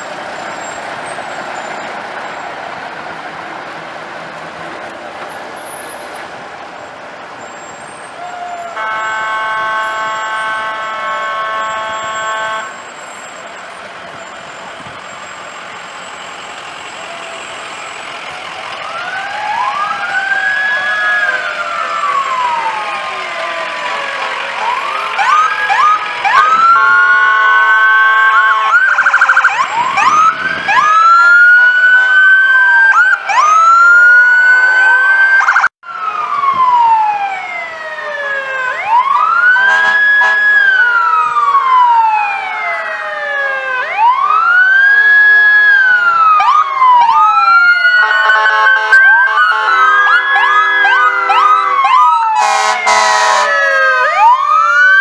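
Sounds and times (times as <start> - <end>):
emergency sirens wailing: 0.0 - 55.0
horn blasts: 8.7 - 13.0, 26.4 - 29.0, 39.6 - 40.6, 48.0 - 53.5.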